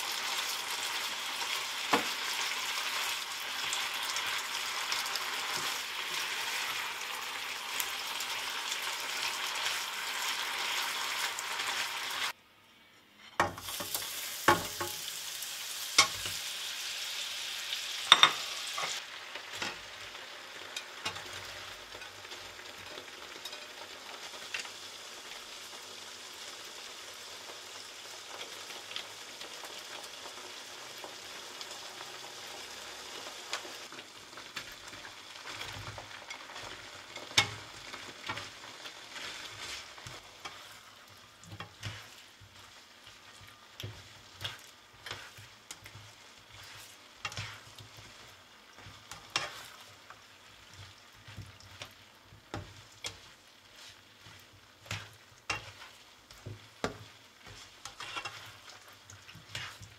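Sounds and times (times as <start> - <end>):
chicken sizzling in butter: 0.0 - 12.4, 13.4 - 59.9
spatula knocking and scraping pan: 13.4 - 15.0, 18.1 - 19.8, 34.6 - 59.9.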